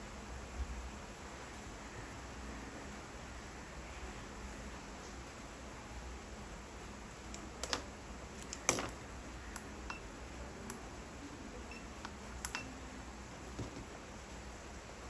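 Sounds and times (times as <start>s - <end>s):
low steady hiss: 0.0s - 15.0s
keypad button presses: 11.7s - 12.8s
handling clicks and knocks: 13.5s - 14.0s.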